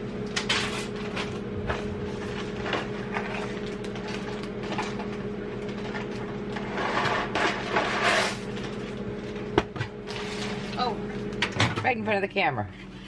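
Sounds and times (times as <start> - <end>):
microwave oven humming: 0.0 - 13.0.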